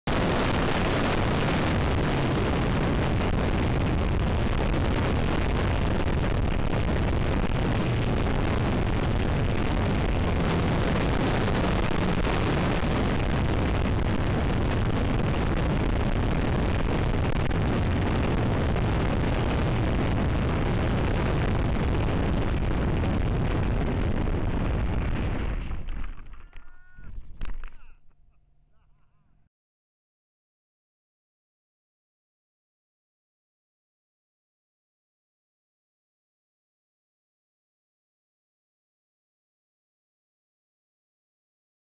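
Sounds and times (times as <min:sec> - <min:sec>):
airflow and propeller noise: 0:00.1 - 0:27.7.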